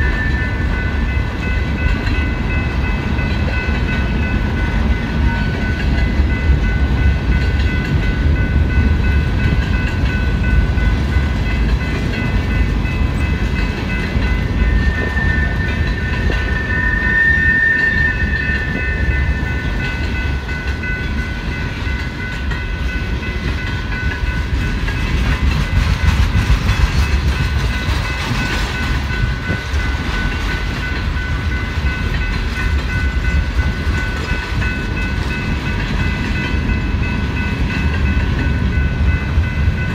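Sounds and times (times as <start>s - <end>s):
high-pitched ringing tones: 0.0s - 25.8s
freight train rumbling past: 0.0s - 39.9s
wheel squeal: 14.7s - 19.0s.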